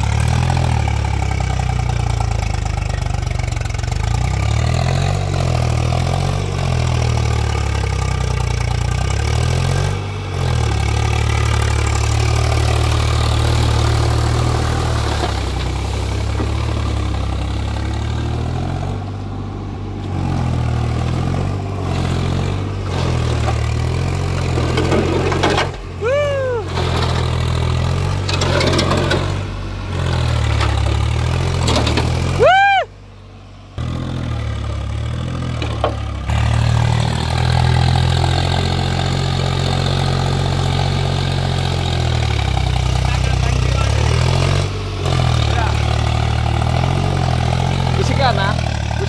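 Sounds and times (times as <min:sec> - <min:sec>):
tractor diesel engine under load: 0:00.0 - 0:49.0.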